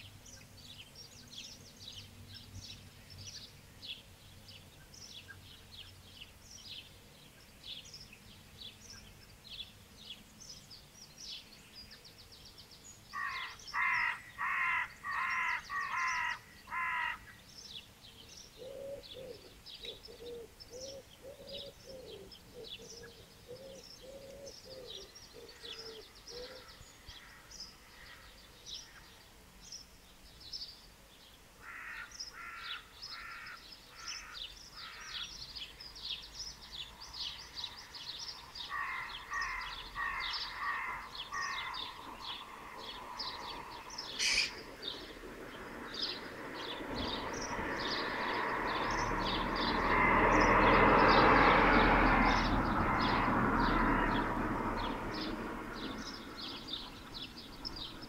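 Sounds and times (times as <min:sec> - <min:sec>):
harsh repeated bird calls: 0:13.0 - 0:17.8, 0:18.4 - 0:29.1, 0:31.6 - 0:58.0
vehicle passing: 0:34.4 - 0:58.0
birds chirping high notes: 0:38.6 - 0:45.0.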